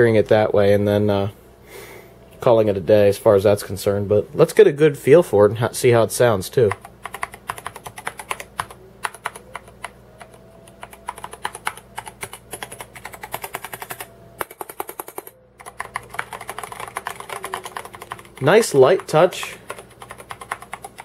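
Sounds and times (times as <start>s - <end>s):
mechanical keyboard typing: 6.6s - 21.0s.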